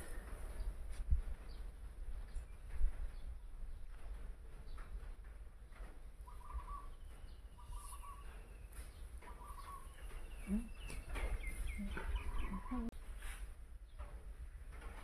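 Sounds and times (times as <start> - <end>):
short low bird calls: 6.2 - 12.9
bird warbling call: 6.3 - 7.0, 7.6 - 8.4, 9.2 - 12.9.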